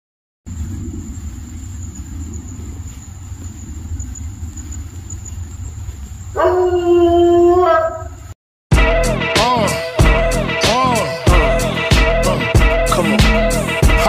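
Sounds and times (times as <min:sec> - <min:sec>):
steady low rumble: 0:00.5 - 0:06.2
dog howling: 0:06.4 - 0:08.2.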